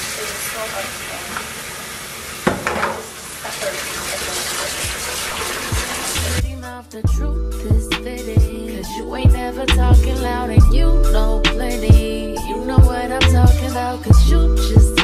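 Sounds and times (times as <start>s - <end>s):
tap running into sink: 2.4s - 3.2s
music: 5.6s - 15.0s.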